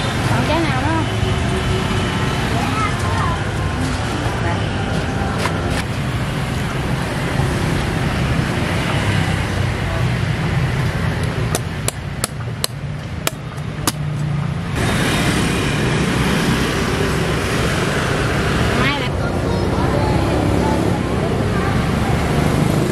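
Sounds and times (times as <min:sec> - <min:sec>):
street traffic noise: 0:00.0 - 0:22.9
machete chopping coconut husk: 0:11.5 - 0:14.3.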